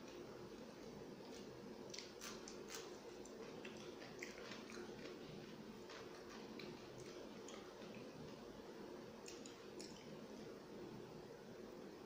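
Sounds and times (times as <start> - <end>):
steady low hum: 0.0 - 12.0
person chewing food: 0.8 - 8.5, 9.2 - 10.2
wet mouth clicks: 9.2 - 10.2.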